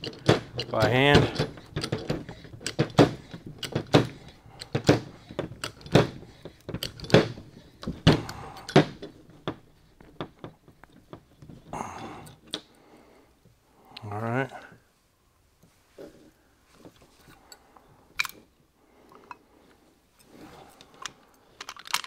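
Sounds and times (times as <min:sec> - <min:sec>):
hand pump knocking: 0:00.0 - 0:09.6.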